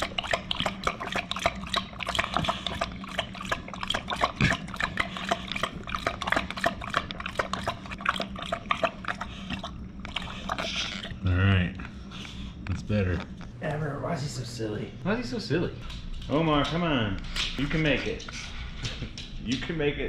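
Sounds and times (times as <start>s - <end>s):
dog lapping water from metal bowl: 0.0s - 11.2s.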